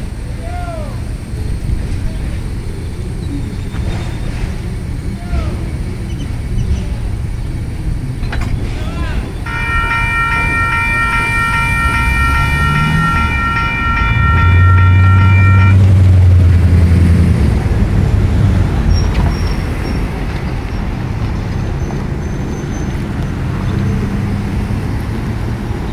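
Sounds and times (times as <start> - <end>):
rumble of passing cars: 0.0 - 25.9
railroad crossing bell: 9.4 - 17.8
vehicle engine revving: 10.6 - 25.9.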